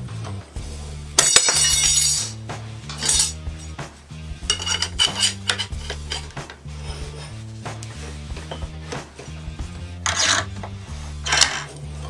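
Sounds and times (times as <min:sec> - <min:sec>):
background music: 0:00.0 - 0:12.0
steel clinking and scraping: 0:01.2 - 0:03.8, 0:04.4 - 0:07.4, 0:10.0 - 0:12.0.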